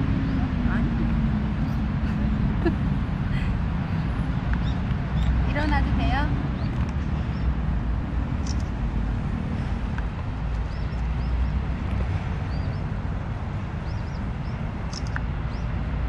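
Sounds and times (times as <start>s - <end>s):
low outdoor rumble: 0.0s - 16.0s
high rising bird chirps: 12.5s - 12.9s, 13.8s - 15.7s.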